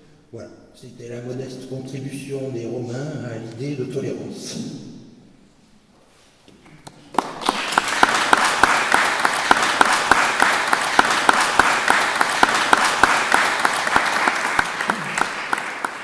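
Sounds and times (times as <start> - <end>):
audience applauding: 7.1 - 16.0.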